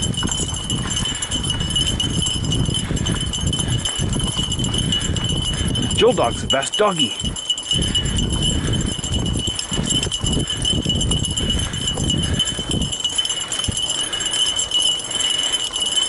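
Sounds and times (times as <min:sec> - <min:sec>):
bike tyres rumbling on dirt: 0:00.0 - 0:06.0
wind on camera: 0:00.0 - 0:14.2
light jingling: 0:00.0 - 0:16.0.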